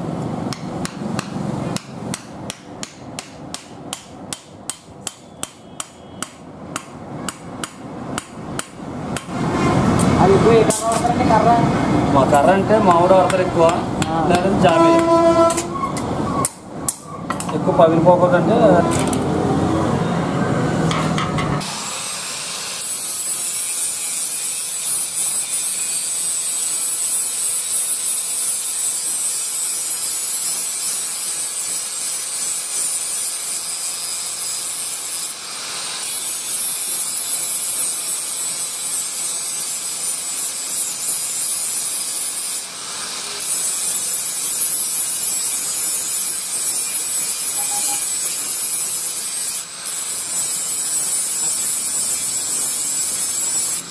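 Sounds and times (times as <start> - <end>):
angle grinder grinding steel: 21.6 - 53.9.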